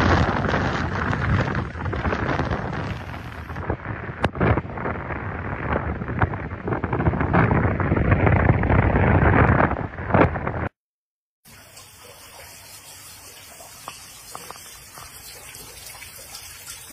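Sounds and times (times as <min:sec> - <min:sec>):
strong wind on microphone: 0:00.0 - 0:10.8.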